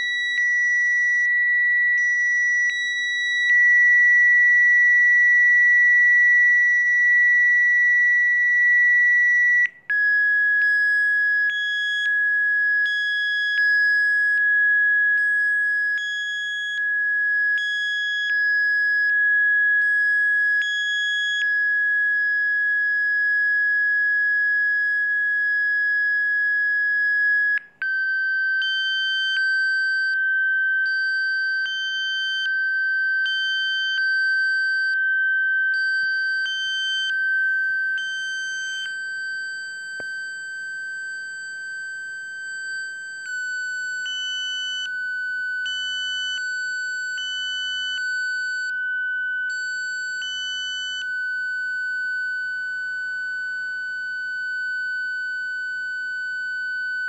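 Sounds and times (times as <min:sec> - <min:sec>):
steady high sine tone: 0:32.4 - 0:44.4.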